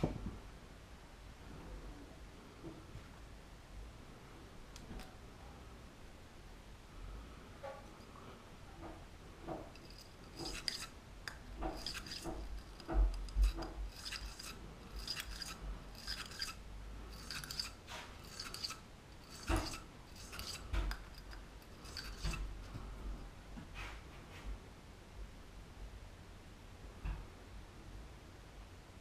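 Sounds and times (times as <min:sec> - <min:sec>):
wire brush scraping barrel: 0:09.7 - 0:11.0, 0:11.6 - 0:22.5.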